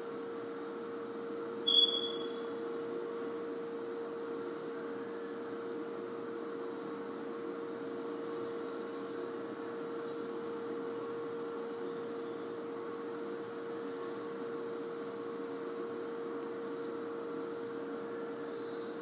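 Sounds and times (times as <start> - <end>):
steady background hum: 0.0 - 19.0
brief high-pitched tone: 1.7 - 2.4.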